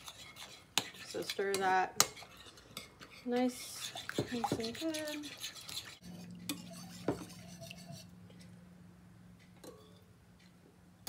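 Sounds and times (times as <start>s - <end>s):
spoon stirring in ceramic bowl: 0.0s - 8.5s.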